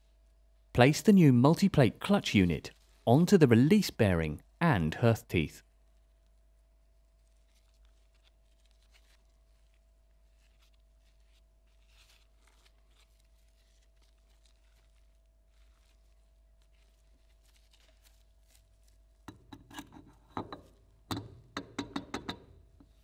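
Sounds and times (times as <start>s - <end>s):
handling rustle: 6.0s - 19.3s
sharp metal clicks and knocks: 19.3s - 22.6s.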